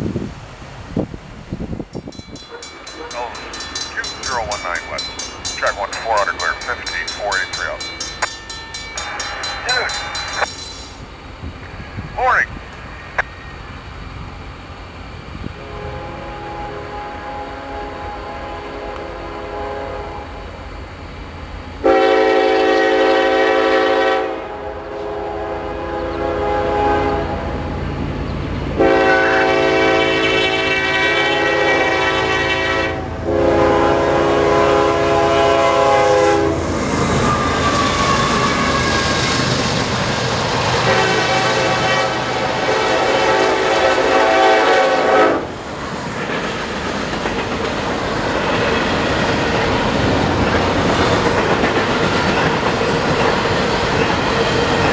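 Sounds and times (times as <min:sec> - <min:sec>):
locomotive rumble: 0:00.4 - 0:54.9
train cars clickety-clack on rails: 0:02.0 - 0:11.7, 0:27.2 - 0:54.9
train air horn blasts: 0:15.6 - 0:20.5, 0:21.8 - 0:27.5, 0:28.8 - 0:36.6, 0:40.8 - 0:45.5.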